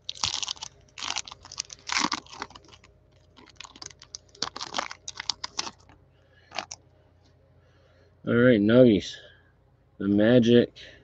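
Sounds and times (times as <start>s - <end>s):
plastic wrapper crinkling: 0.0s - 6.8s.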